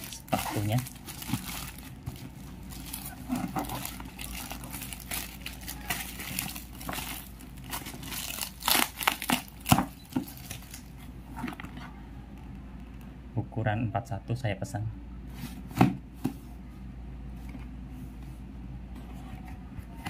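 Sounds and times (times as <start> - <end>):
packaging crunches: 0.0 - 10.9
packaging wrapping rustling: 0.0 - 11.7.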